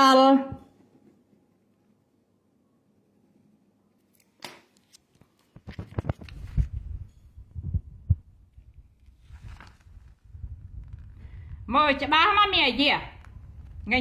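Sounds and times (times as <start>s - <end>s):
paper rustling: 4.8s - 6.8s, 9.0s - 11.4s
dull low thumps: 6.8s - 8.5s, 10.2s - 12.2s.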